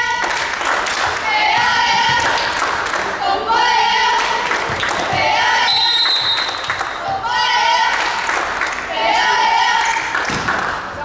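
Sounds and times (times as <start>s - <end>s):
girls chanting a cheer: 0.0s - 5.9s, 7.0s - 11.0s
hand clapping: 6.1s - 7.0s.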